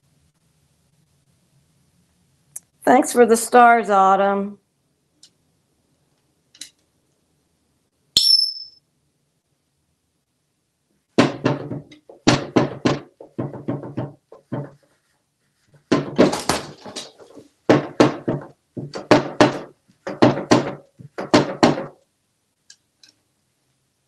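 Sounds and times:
toy fish thudding on wood: 15.9s - 22.0s.

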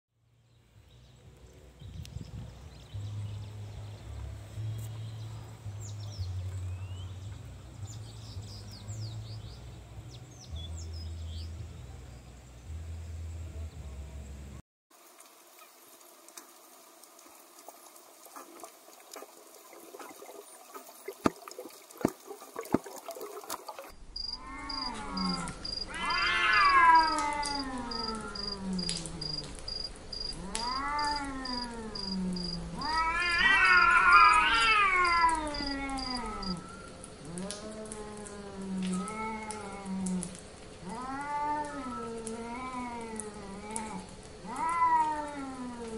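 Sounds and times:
cats meowing: 24.4s - 29.6s, 30.3s - 45.9s.

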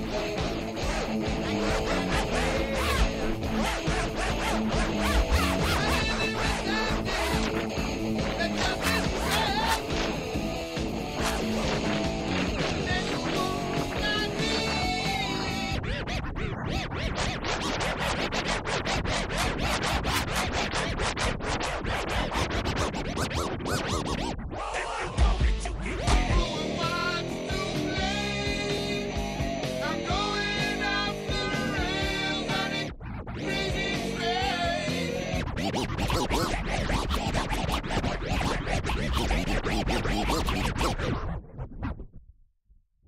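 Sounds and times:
music beat: 0.0s - 15.8s, 25.1s - 26.6s
record scratching: 0.0s - 28.0s, 30.0s - 42.2s.

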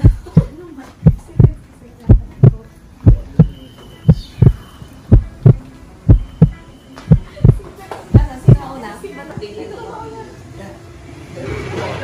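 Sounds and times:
heartbeat thumps: 0.0s - 8.7s.

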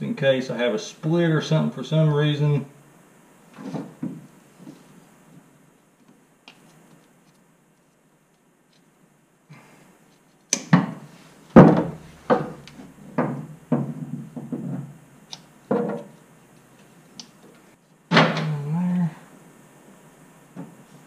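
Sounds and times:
hand tools knocking and clunking: 11.6s - 15.0s, 15.7s - 16.1s.

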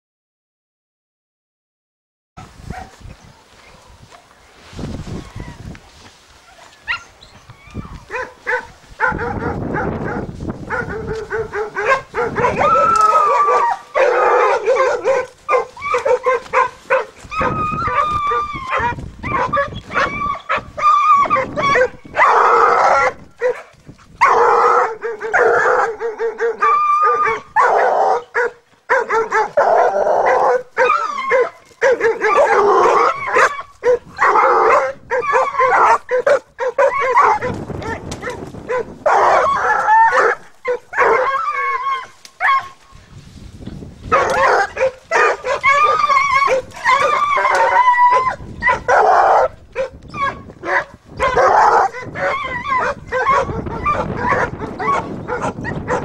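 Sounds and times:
hounds baying: 6.5s - 42.8s, 44.1s - 56.0s.

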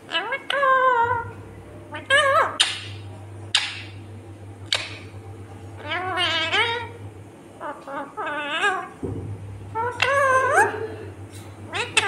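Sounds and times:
parrot warbling calls: 0.0s - 4.0s, 4.6s - 7.0s, 7.6s - 9.0s, 9.7s - 11.0s, 11.7s - 12.0s
parrot squawks: 0.1s - 1.3s, 1.9s - 4.0s, 5.8s - 7.0s, 11.7s - 12.0s.

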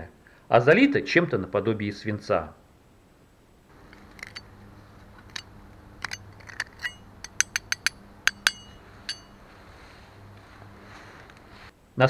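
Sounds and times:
knife tapping on stone: 6.8s - 9.4s.

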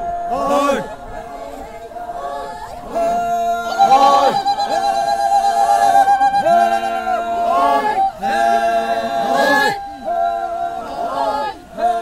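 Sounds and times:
group singing unaccompanied: 0.0s - 12.0s.

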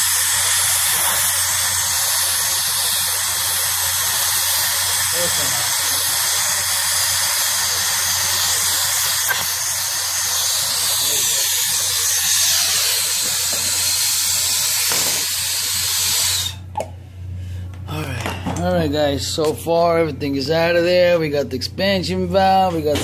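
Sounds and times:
torch flame hissing: 0.0s - 16.7s.

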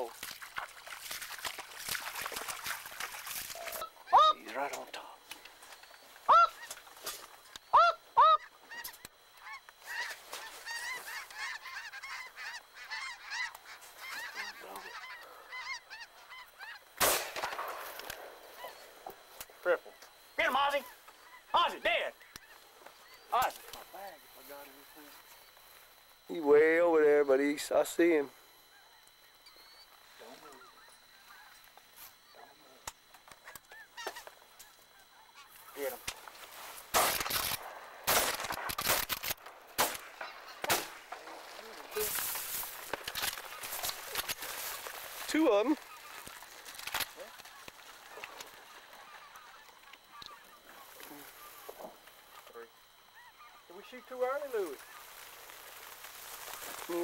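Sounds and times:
geese honking: 0.0s - 38.5s, 39.4s - 57.0s
sharp clicks: 37.0s - 40.0s.

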